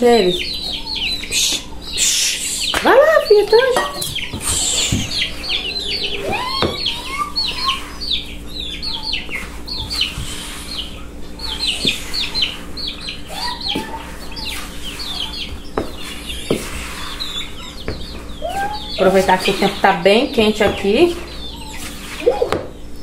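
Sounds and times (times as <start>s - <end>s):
chicks peeping: 0.0s - 23.0s
hen calling: 4.1s - 9.4s.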